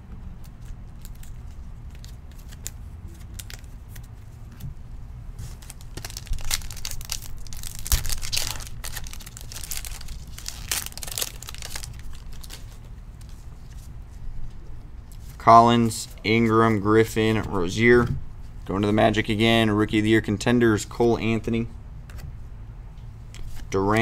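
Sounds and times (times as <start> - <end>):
foil wrapper tearing and crinkling: 5.5 - 12.8.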